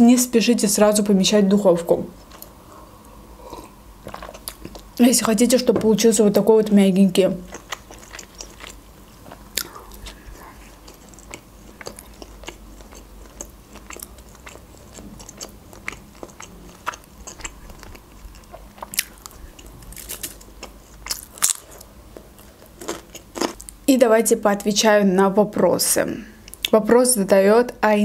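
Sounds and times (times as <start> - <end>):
chewing bread crust: 3.5 - 4.9, 7.4 - 23.8
crunchy cucumber bites: 7.4 - 21.8.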